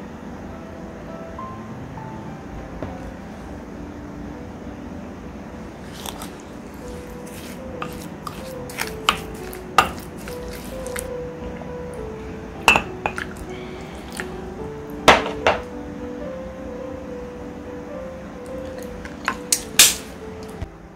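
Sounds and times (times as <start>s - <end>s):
background music simple melody: 0.0s - 20.9s
kitchen utensils knocking: 12.7s - 13.2s, 15.1s - 15.7s.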